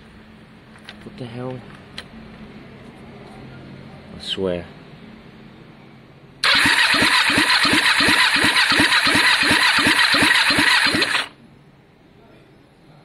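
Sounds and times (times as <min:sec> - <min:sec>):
motorcycle starter cranking: 0:06.4 - 0:11.4.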